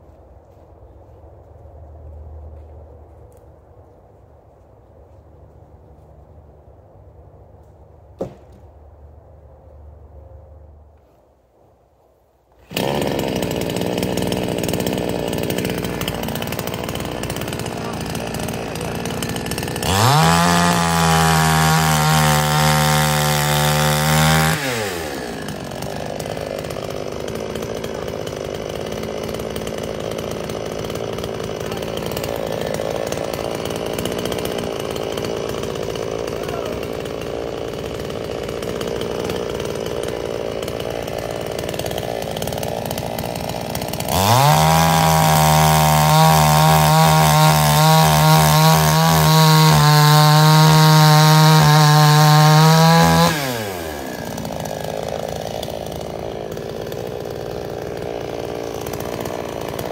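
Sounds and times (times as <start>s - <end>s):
chainsaw idling: 12.5s - 59.9s
chainsaw revving cutting logs: 12.5s - 59.9s.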